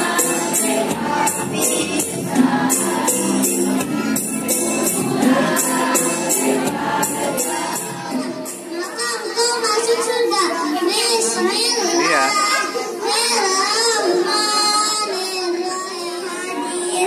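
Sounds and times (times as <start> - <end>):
jingling tambourine-like beat: 0.0 - 8.8
girls singing together: 0.0 - 17.0.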